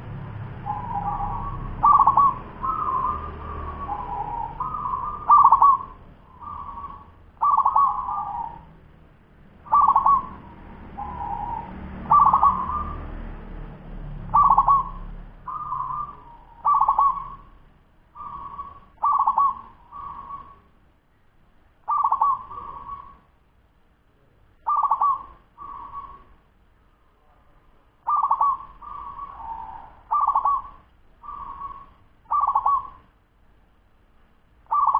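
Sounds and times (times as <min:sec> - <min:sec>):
dove cooing: 0:00.0 - 0:08.8, 0:09.5 - 0:13.5, 0:14.2 - 0:17.6, 0:18.2 - 0:20.7, 0:21.9 - 0:23.3, 0:24.6 - 0:26.3, 0:28.0 - 0:33.1, 0:34.7 - 0:34.9.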